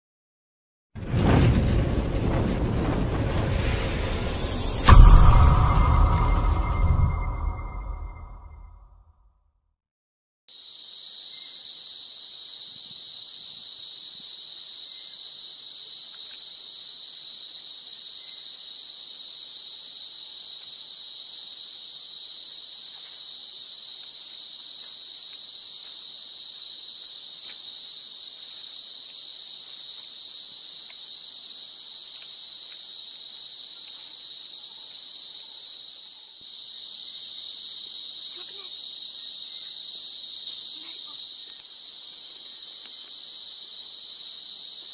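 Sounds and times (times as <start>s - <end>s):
high-pitched insect chorus: 10.5s - 44.9s.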